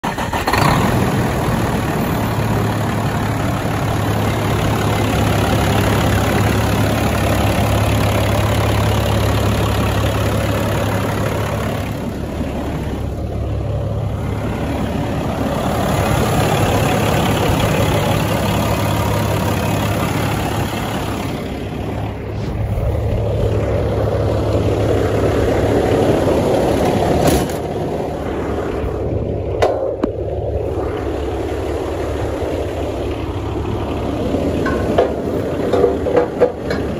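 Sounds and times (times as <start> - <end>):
diesel engine idling: 0.0 - 36.9.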